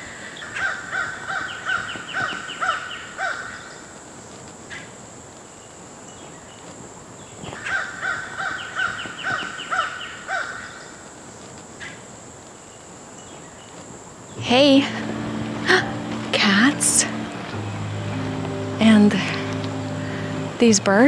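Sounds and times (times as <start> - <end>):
bird calling in harsh notes: 14.4 - 21.0.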